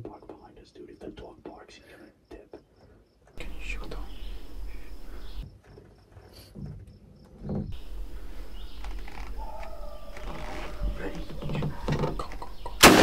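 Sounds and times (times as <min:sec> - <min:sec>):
faint insect calls: 0:00.0 - 0:13.0
faint bird calls: 0:03.4 - 0:05.5, 0:07.6 - 0:12.9.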